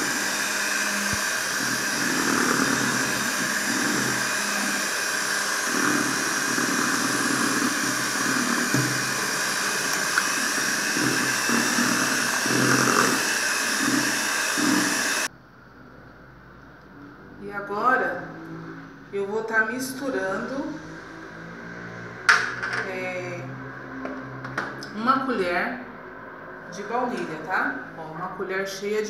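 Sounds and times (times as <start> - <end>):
electric hand mixer running: 0.0 - 15.3.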